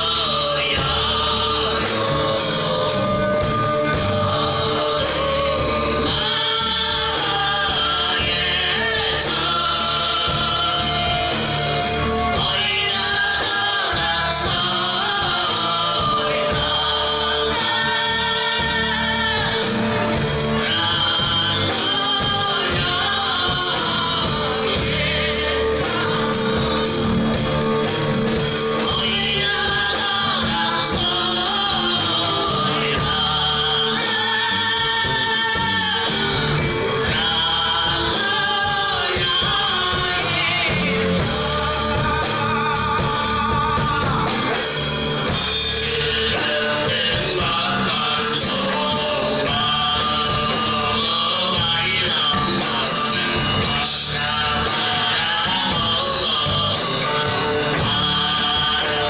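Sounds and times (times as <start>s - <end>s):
drums: 0.0s - 59.0s
electric bass: 0.0s - 59.0s.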